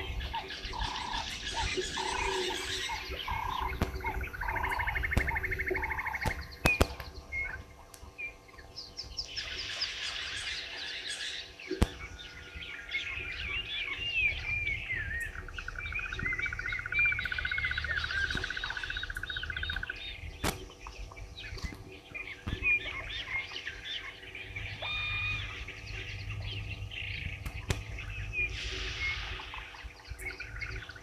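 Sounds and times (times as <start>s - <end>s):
bird rapid trill: 0.0s - 31.0s
birds chirping and calling: 0.0s - 31.0s
sharp snaps: 3.1s - 7.3s, 11.7s - 12.2s, 18.2s - 23.2s, 27.4s - 28.3s.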